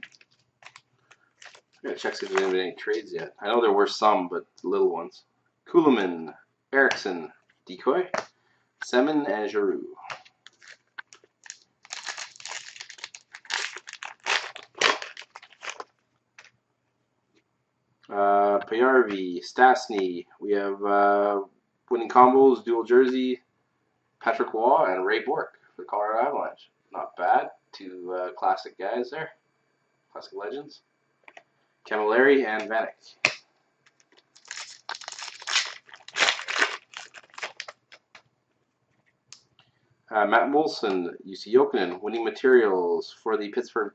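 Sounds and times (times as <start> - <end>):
card pack wrapper tearing and crinkling: 0.0 - 3.2, 10.1 - 16.5, 33.2 - 38.2.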